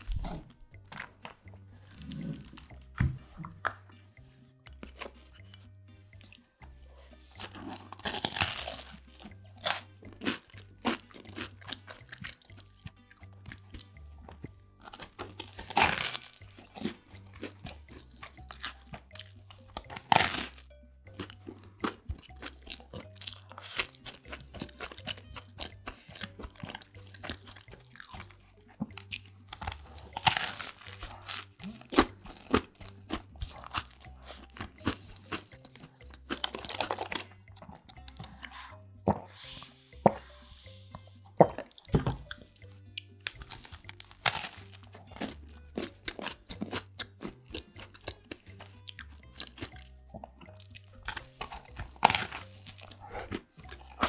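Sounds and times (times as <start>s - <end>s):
chewing crackles: 0.0s - 40.3s, 41.2s - 54.0s
crunching toasted sandwich: 43.3s - 47.3s.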